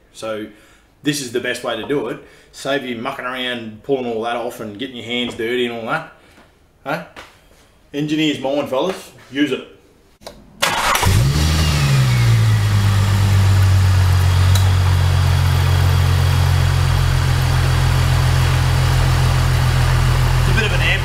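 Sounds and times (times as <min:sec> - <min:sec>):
car engine cranking and idling: 0:10.6 - 0:21.0.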